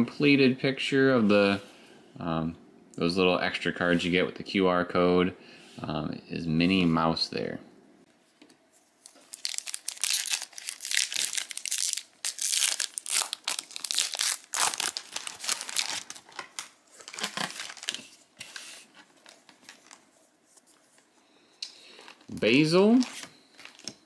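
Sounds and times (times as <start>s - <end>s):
foil wrapper crinkling and tearing: 9.0s - 18.2s, 22.8s - 24.0s.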